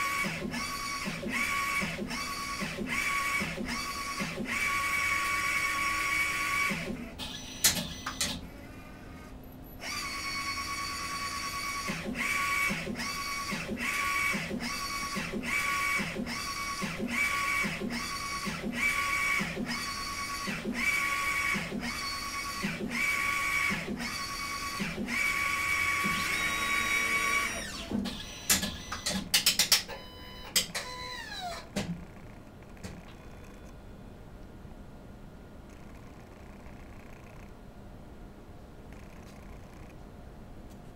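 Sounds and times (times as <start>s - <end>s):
printer carriage whining: 0.0s - 32.0s
printer clicks: 27.9s - 30.9s.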